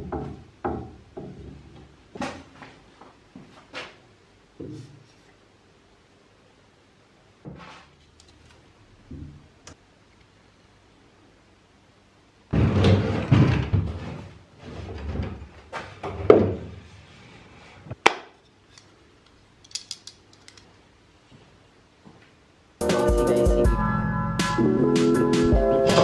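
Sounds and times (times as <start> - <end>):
wooden cabinet door scraping: 12.5 - 17.9.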